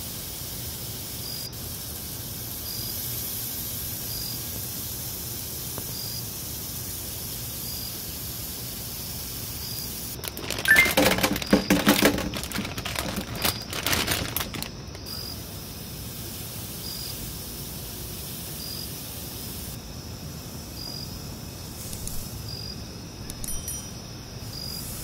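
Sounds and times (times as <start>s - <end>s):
faint steady hiss: 0.0s - 25.0s
potatoes clattering into metal colander: 10.2s - 14.8s
short high chirp: 10.6s - 11.0s.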